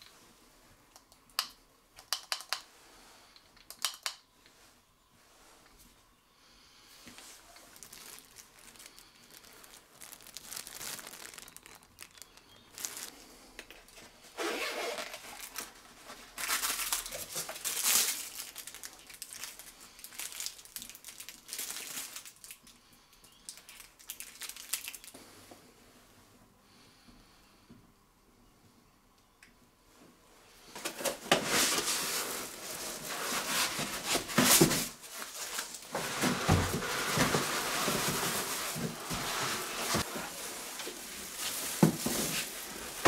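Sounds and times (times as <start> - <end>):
plastic wrapping crinkling: 7.0 - 22.8, 23.4 - 25.2, 30.8 - 43.0.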